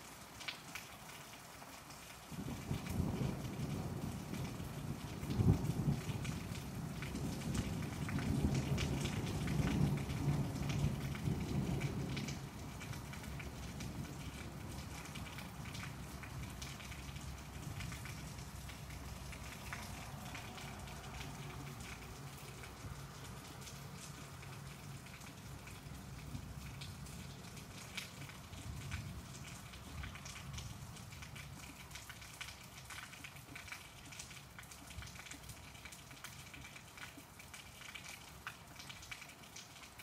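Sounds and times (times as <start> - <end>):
rain falling: 0.0 - 40.0
thunder rumbling: 2.4 - 31.3.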